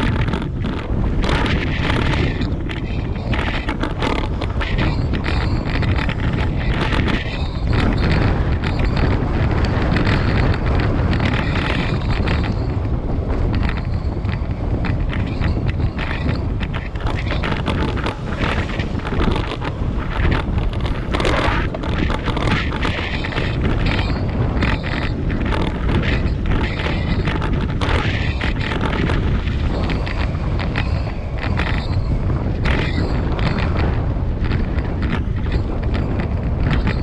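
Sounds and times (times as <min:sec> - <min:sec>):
crackles and knocks: 0:00.0 - 0:37.0
wind buffeting microphone: 0:00.0 - 0:37.0.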